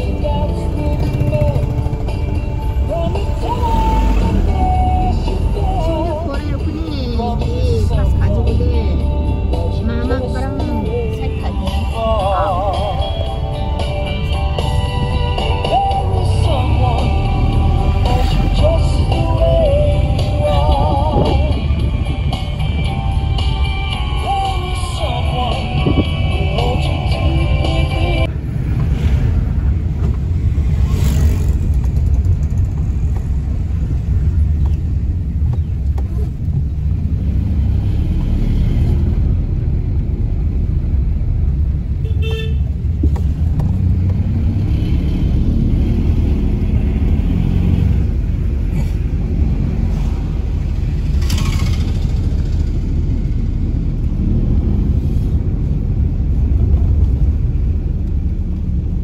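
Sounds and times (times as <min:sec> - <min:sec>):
engine and road rumble: 0:00.0 - 0:59.0
car horn toot: 0:42.0 - 0:42.7.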